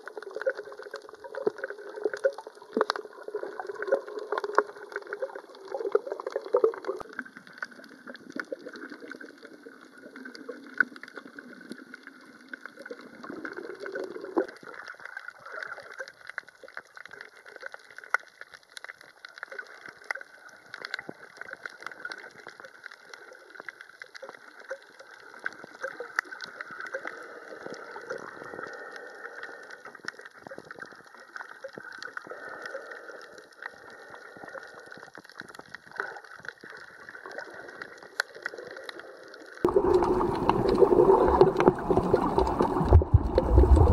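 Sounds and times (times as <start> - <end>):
small underwater clicks: 0.0 - 43.9
underwater wash of water: 0.0 - 43.9
low underwater rushing: 35.9 - 43.9.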